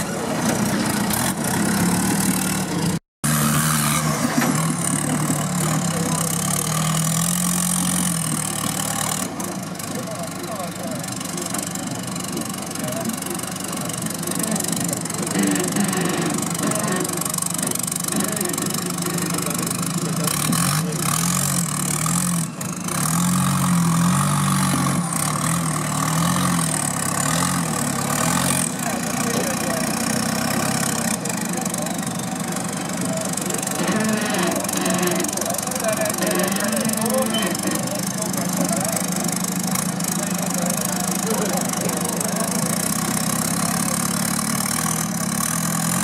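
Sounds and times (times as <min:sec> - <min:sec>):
buggy engine running: 0:00.0 - 0:46.0.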